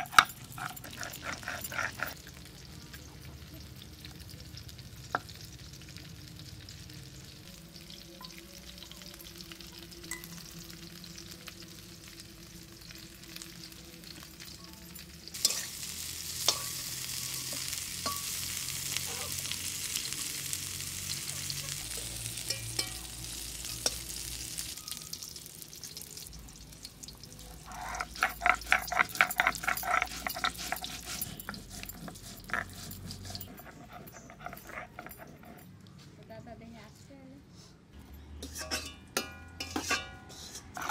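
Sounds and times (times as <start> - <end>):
spatula scraping a pan: 0.0 - 2.2, 15.4 - 19.5, 27.6 - 35.7, 38.4 - 40.9
vegetables sizzling in a pan: 0.9 - 32.7.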